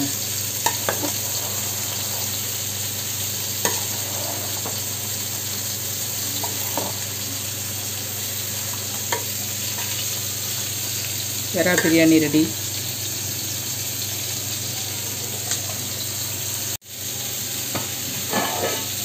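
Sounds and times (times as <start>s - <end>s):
ladle stirring rice in pot: 0.6s - 5.3s, 6.4s - 7.1s.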